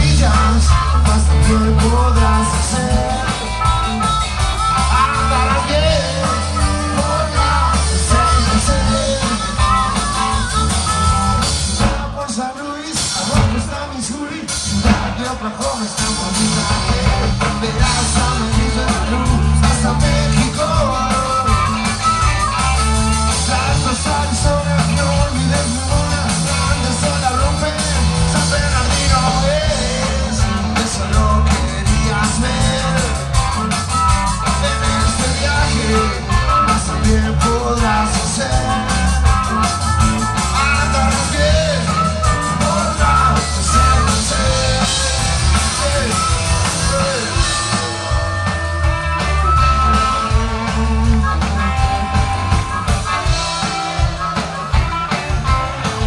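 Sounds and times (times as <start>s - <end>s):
person singing: 0.0s - 3.9s, 4.8s - 10.6s, 11.7s - 22.2s, 23.3s - 33.4s, 34.4s - 52.8s
live rock band playing: 0.0s - 56.0s
drum hits: 14.6s - 56.0s.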